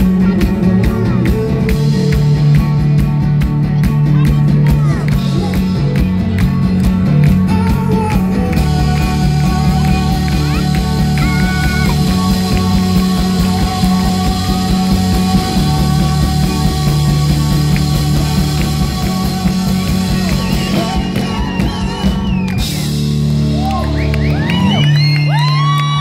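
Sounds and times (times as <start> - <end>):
drums: 0.0 - 26.0
live rock band: 0.0 - 26.0
crowd whooping and cheering: 8.6 - 17.0, 17.6 - 26.0.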